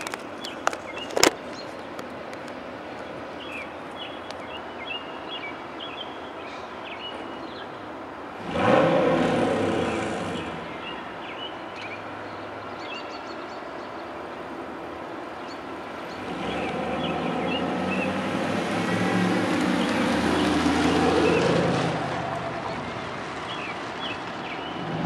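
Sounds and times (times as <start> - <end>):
car engine revving and idling: 8.4 - 10.9, 16.0 - 25.0
car accelerating away: 8.4 - 11.0, 16.0 - 25.0.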